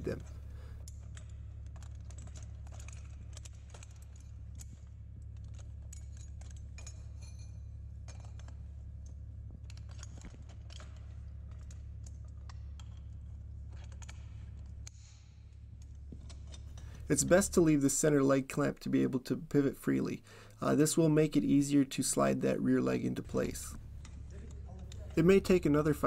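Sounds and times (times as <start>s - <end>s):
small metal clicks and clinks: 0.0s - 17.1s
low hum: 0.0s - 26.0s.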